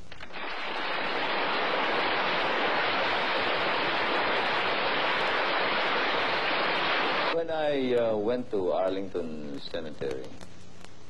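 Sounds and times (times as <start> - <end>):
large audience applauding: 0.4 - 7.4.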